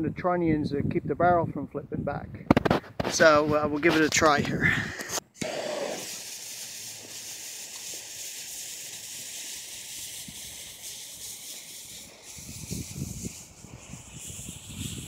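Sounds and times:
fuse burning with a hiss: 0:05.0 - 0:15.0.

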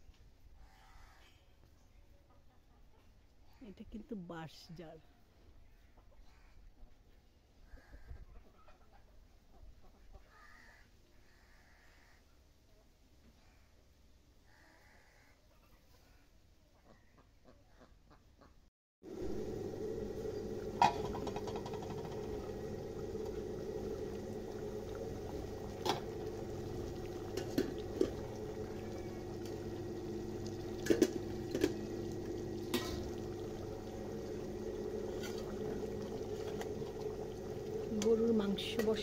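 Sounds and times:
steady hum: 0:19.0 - 0:39.0
curry bubbling in a pot: 0:19.1 - 0:39.0.

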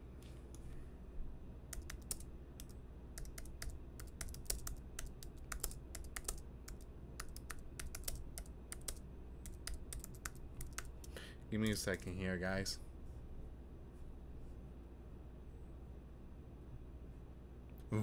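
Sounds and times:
typing on a keyboard: 0:01.7 - 0:11.0.

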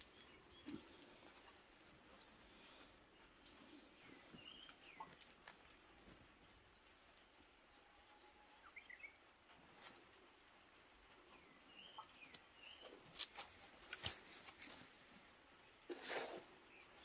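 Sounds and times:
small birds chirping: 0:00.0 - 0:17.0
scraping rustle: 0:15.9 - 0:16.6
gloved hands working soil: 0:15.9 - 0:16.8.

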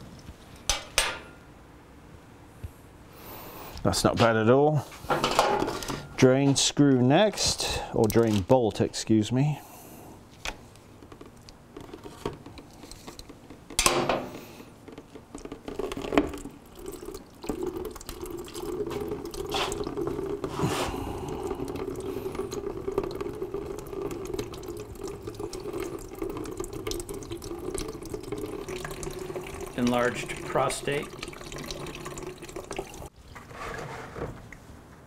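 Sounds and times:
liquid pouring into plastic bucket: 0:14.8 - 0:33.1.

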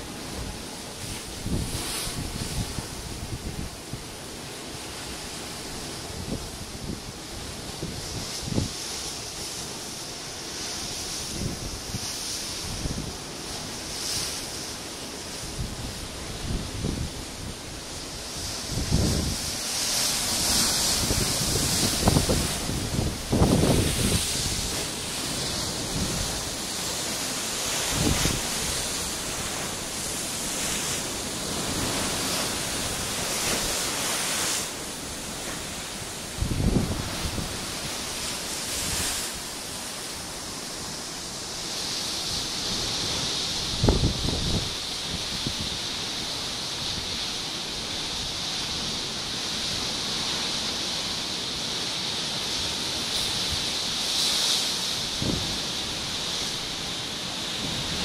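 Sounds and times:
ocean surf breaking on rocks: 0:00.0 - 0:58.0
wind gust on microphone: 0:05.8 - 0:08.9, 0:15.4 - 0:40.4, 0:42.2 - 0:47.3, 0:52.6 - 0:58.0
wind bumps on microphone: 0:07.8 - 0:08.8, 0:18.5 - 0:19.6, 0:20.4 - 0:26.4, 0:27.9 - 0:28.8, 0:36.4 - 0:37.7, 0:42.7 - 0:45.8, 0:55.1 - 0:56.4
surf breaking against rocks: 0:18.1 - 0:44.8.

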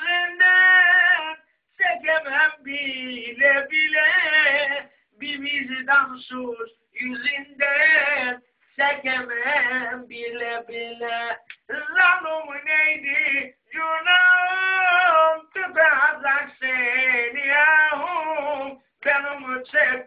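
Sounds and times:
man singing unaccompanied: 0:00.0 - 0:20.0.

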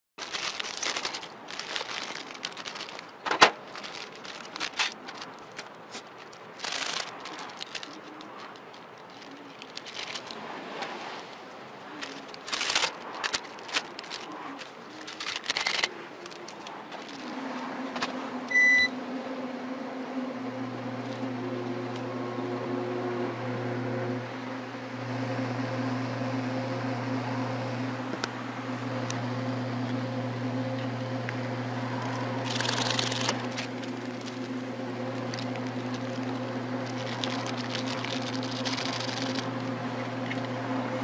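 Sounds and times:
plastic packets crinkling: 0:00.2 - 0:18.1, 0:31.9 - 0:40.6
electronic beep: 0:18.5 - 0:19.0.

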